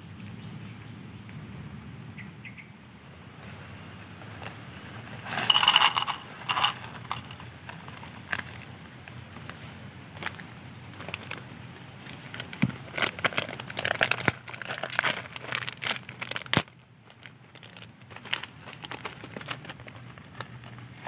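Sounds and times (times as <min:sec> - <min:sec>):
rustling: 0:03.4 - 0:08.7
light clinking: 0:05.2 - 0:08.6.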